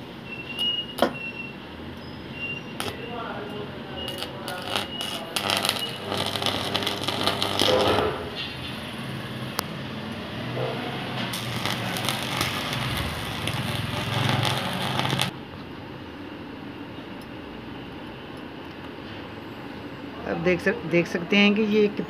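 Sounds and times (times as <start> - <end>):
electric welding arc crackling: 2.6 - 9.6, 11.0 - 15.4.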